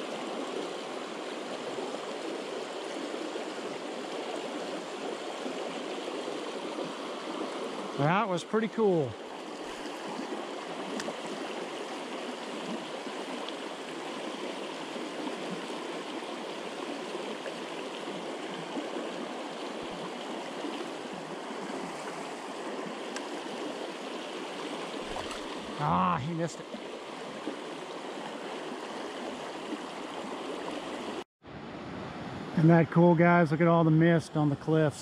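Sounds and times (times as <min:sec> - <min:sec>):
river water rushing over rocks: 0:08.8 - 0:31.2.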